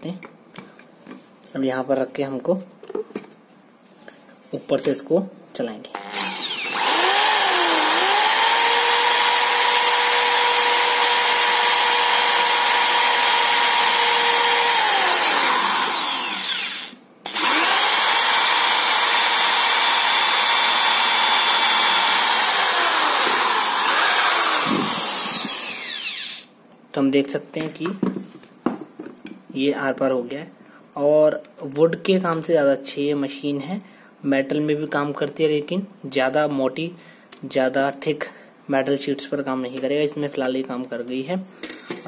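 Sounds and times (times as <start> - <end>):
electric drill drilling sheet metal: 6.0 - 26.5.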